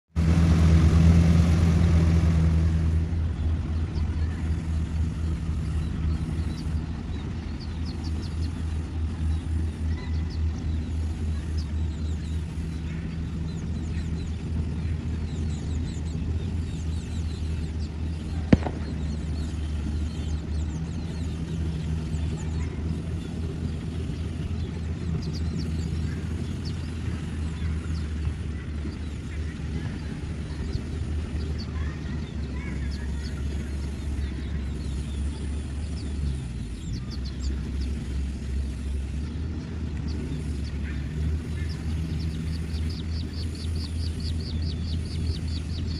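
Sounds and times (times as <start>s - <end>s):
harvester engine droning: 0.1s - 45.9s.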